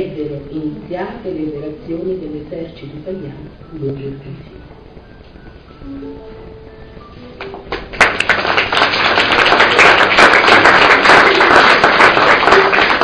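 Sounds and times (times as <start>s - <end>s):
soft plucked-note music: 3.6s - 7.9s
audience applause: 7.7s - 13.0s.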